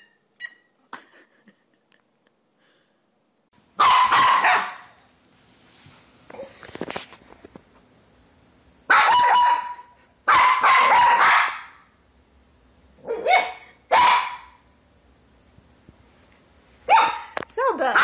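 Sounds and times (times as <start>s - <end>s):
puppy barking: 3.8s - 5.0s, 8.9s - 11.8s, 13.0s - 14.6s, 16.9s - 18.0s.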